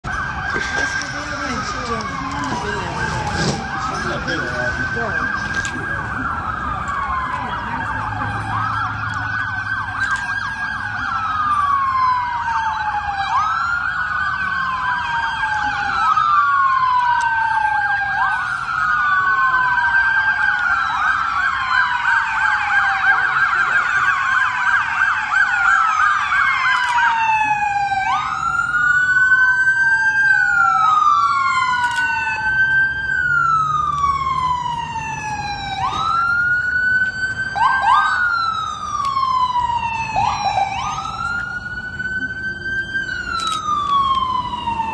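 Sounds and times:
emergency sirens wailing: 0.0s - 44.9s
siren quick short sweeps: 0.6s - 5.8s.

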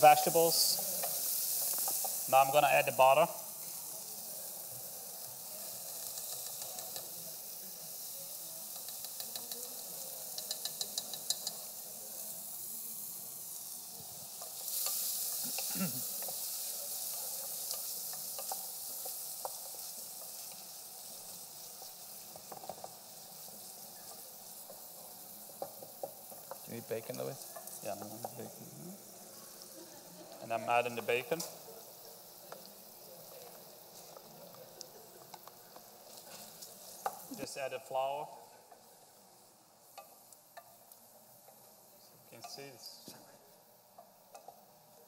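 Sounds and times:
vegetables sizzling in butter: 0.0s - 45.0s
wooden spoon stirring and scraping: 14.0s - 37.5s.

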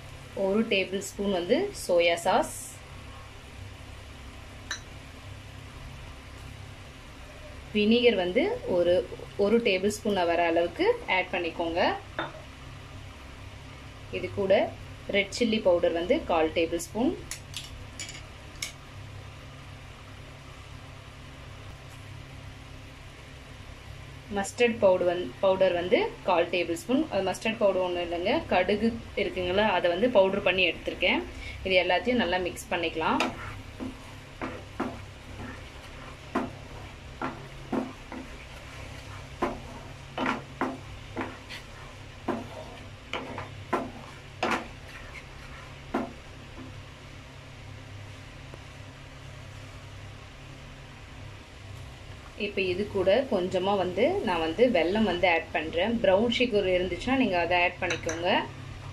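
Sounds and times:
low machine hum: 0.0s - 58.9s
spatula knocking and scraping pan: 32.8s - 46.8s.

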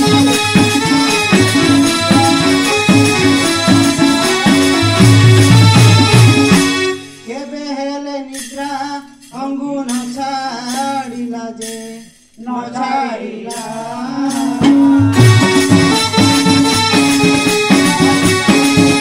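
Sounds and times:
harmonium: 0.0s - 7.4s, 14.7s - 19.0s
drum beats: 0.0s - 19.0s
person singing devotional song: 7.2s - 16.0s, 17.4s - 19.0s.

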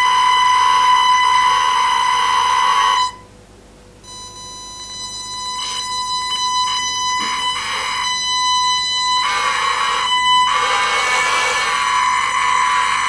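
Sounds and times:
high buzzing electric motor whine: 0.0s - 3.2s, 4.9s - 13.0s
hiss: 9.1s - 13.0s.

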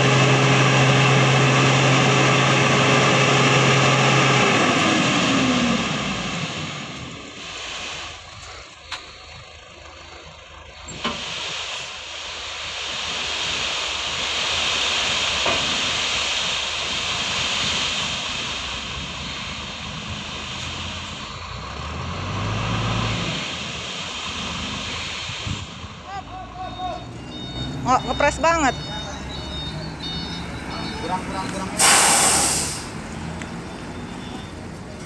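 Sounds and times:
diesel truck engine revving: 0.0s - 35.0s
sand sliding out hissing: 7.3s - 9.2s, 10.9s - 21.2s, 31.8s - 33.1s.

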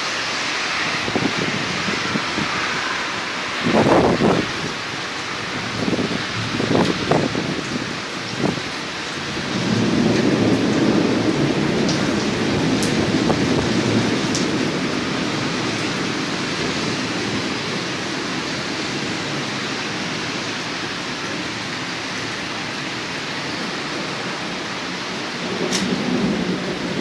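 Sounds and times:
heavy rain hissing: 0.0s - 27.0s
thunder rumbling: 3.6s - 4.8s, 9.3s - 20.2s, 23.6s - 27.0s.

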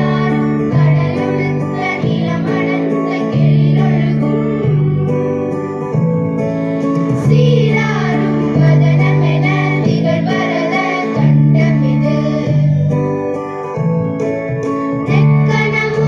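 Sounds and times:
girls singing together: 0.0s - 5.2s, 7.2s - 12.7s, 15.1s - 16.0s
held instrumental chords: 0.0s - 16.0s.

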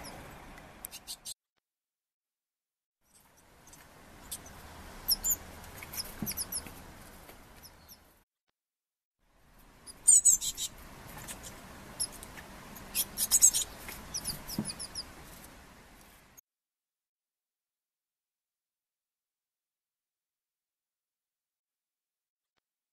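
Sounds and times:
bird fledgling chirping: 3.6s - 6.7s, 9.9s - 12.2s, 12.9s - 15.1s.

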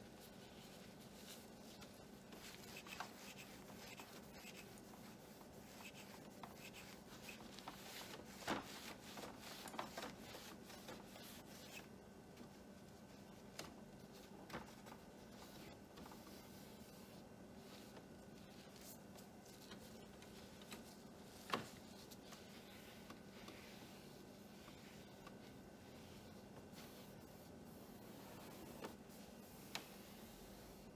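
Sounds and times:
faint steady hum: 0.0s - 30.9s
cloth rubbing on glass: 15.2s - 30.9s.

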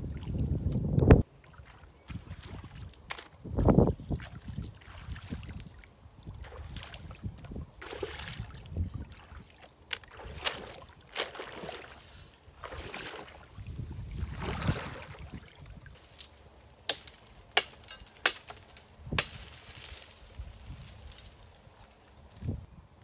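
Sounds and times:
water sloshing and splashing: 0.0s - 16.2s.

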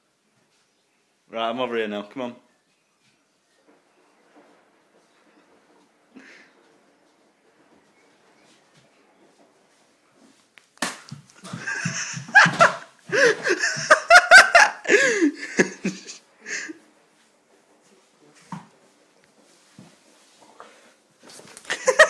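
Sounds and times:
knocks and thumps: 10.8s - 14.2s
hearty laughter with squeals: 11.4s - 16.8s, 21.7s - 22.0s.

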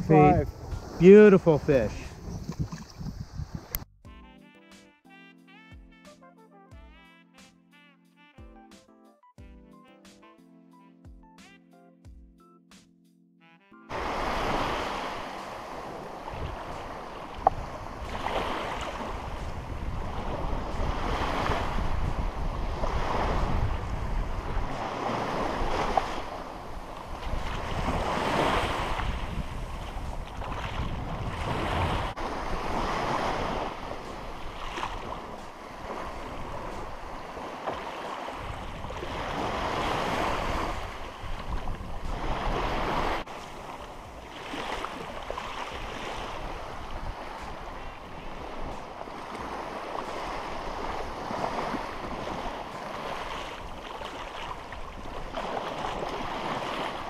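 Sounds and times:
wind buffeting microphone: 0.0s - 3.9s, 14.4s - 37.6s, 38.4s - 57.0s
small surf breaking on beach: 13.9s - 57.0s.

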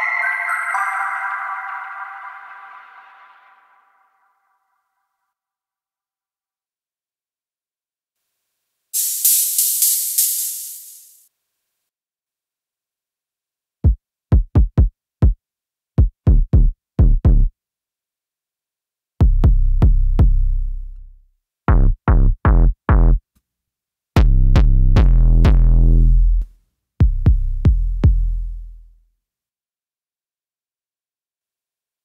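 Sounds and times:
synthesized kick drum hits: 16.0s - 17.5s, 19.2s - 20.5s, 24.2s - 25.8s, 27.0s - 28.6s.

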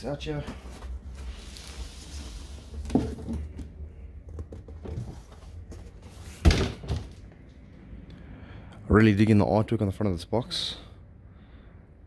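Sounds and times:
cardboard boxes scraping: 0.5s - 3.6s
box thumping down: 6.4s - 7.2s.

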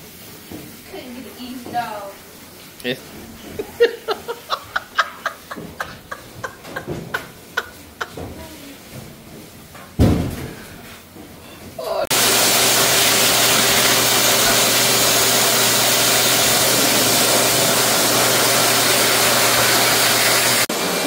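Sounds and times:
thump: 10.0s - 10.6s
pet dryer blowing air: 12.1s - 21.0s.

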